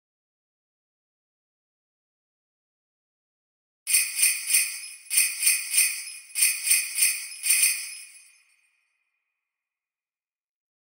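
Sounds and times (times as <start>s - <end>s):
sleigh bells shaken: 3.9s - 8.7s.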